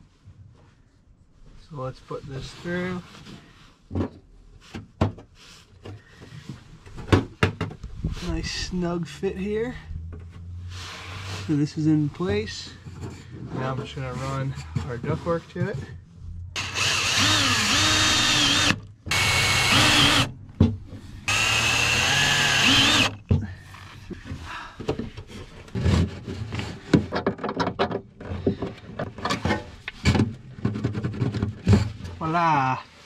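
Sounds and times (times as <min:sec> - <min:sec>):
power drill running: 0:16.6 - 0:20.3, 0:21.3 - 0:23.2.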